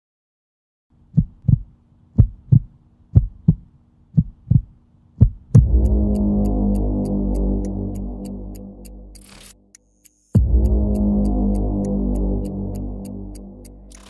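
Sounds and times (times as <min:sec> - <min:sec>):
heartbeat double thuds: 0:01.1 - 0:08.8, 0:10.4 - 0:13.9
music with ticking beat: 0:04.2 - 0:14.0.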